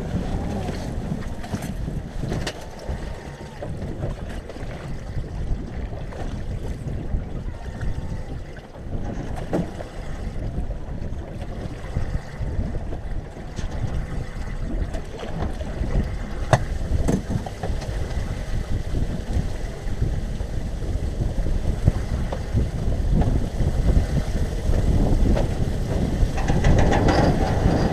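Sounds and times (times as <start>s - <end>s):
waves slapping boat hull: 0.0s - 27.9s
wind buffeting microphone: 0.0s - 27.9s
knocks and clatters of gear: 1.2s - 2.9s, 26.3s - 27.9s.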